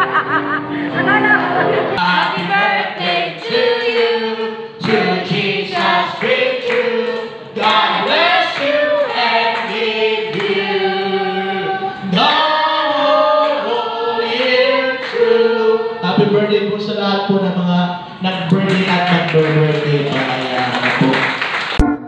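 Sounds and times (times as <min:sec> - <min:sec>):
group singing worship song: 0:01.9 - 0:16.7.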